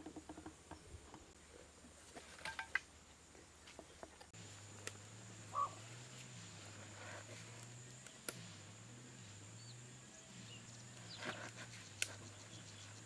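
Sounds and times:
bird calling: 5.4s - 6.3s.

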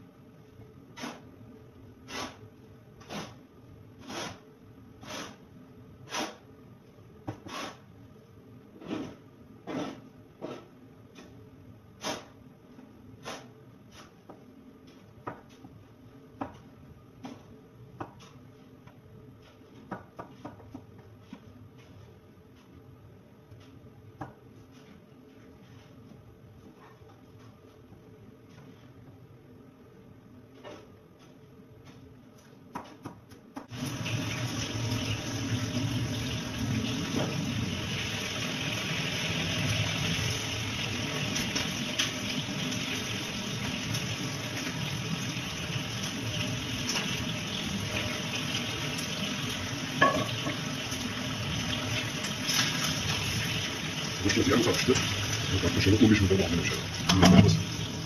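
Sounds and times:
knife slicing tomatoes on board: 8.8s - 10.7s, 13.2s - 14.2s.

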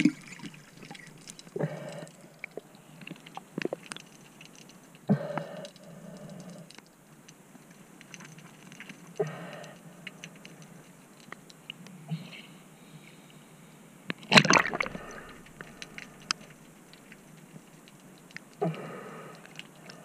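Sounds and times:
faint underwater clicks: 0.0s - 12.0s, 14.0s - 20.0s
short bubbling bursts: 14.3s - 16.6s.

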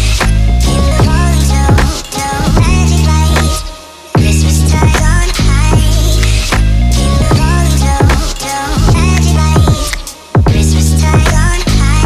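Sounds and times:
music with deep bass and beat: 0.0s - 12.0s.

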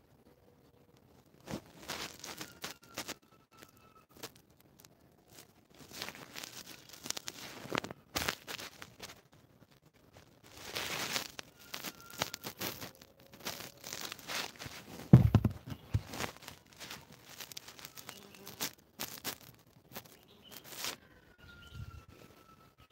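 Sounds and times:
heavy bump on microphone: 15.0s - 16.2s.

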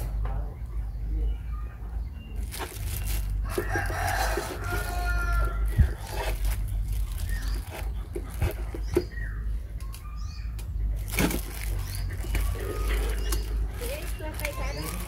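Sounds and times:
steady low rumble: 0.0s - 15.0s
plastic bag crinkling: 2.4s - 9.0s, 11.0s - 15.0s.

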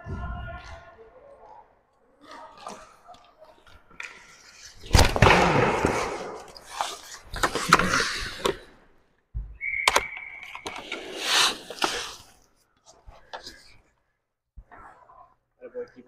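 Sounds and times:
hockey sticks clacking: 2.2s - 8.8s, 9.7s - 13.8s
skates scraping on plastic floor: 4.0s - 8.7s, 10.6s - 13.7s
referee's whistle blast: 9.6s - 10.6s.

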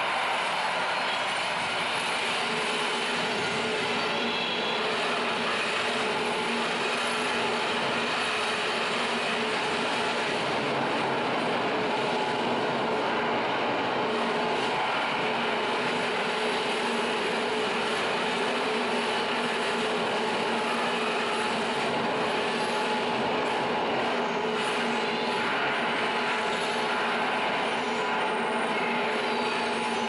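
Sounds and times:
dense electronic noise: 0.0s - 30.0s.

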